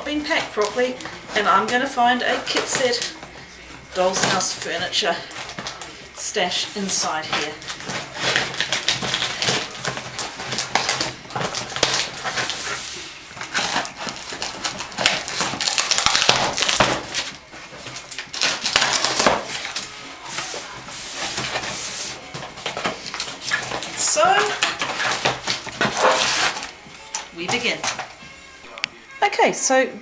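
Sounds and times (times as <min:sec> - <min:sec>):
cardboard box crackling and rustling: 0:07.2 - 0:26.8.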